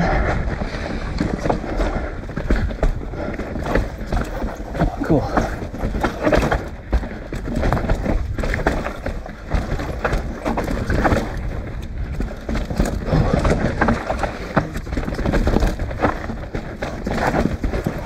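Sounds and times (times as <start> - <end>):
low rumble: 0.0 - 5.9
bike rattling over bumps: 0.0 - 18.0
bike tyres rolling over dirt: 0.0 - 18.0.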